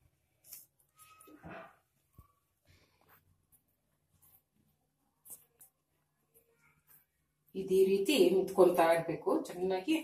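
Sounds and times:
hands kneading dough: 0.0 - 7.5.

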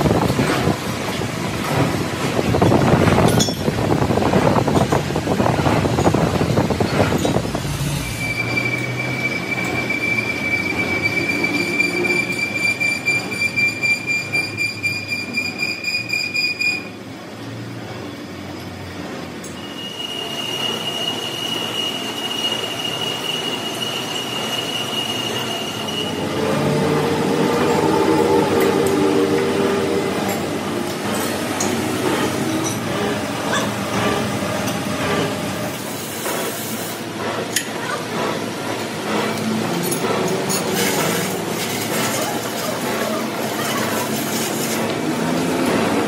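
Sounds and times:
machine tool squealing cutting metal: 6.9 - 17.0, 19.5 - 26.4, 31.0 - 36.9.

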